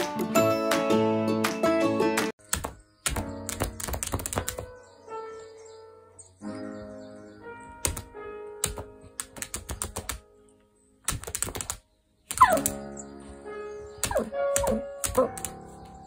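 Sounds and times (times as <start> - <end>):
dog's paws tapping a tablet screen: 2.5 - 4.8, 7.8 - 10.3, 11.1 - 12.9, 14.0 - 16.0.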